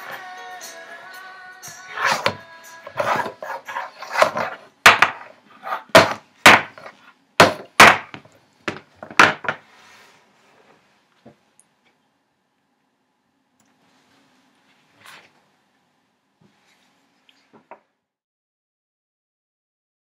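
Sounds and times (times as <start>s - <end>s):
rubber chicken whacking a table: 4.1s - 5.3s, 5.9s - 9.6s.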